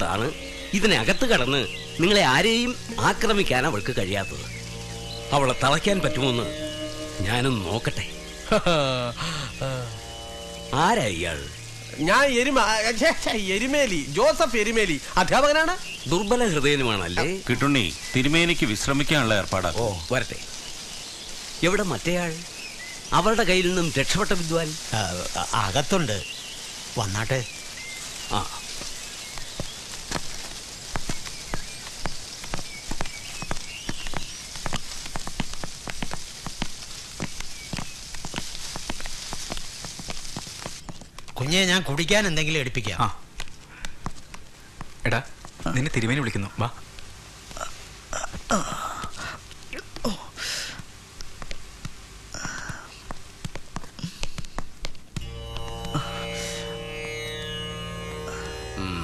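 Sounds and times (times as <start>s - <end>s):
music: 0.0s - 12.8s, 55.2s - 59.0s
steady background hiss: 0.0s - 59.0s.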